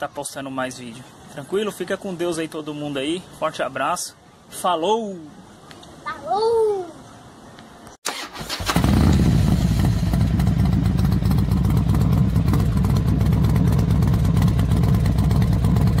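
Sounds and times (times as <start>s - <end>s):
loud pulsing engine: 8.8s - 16.0s.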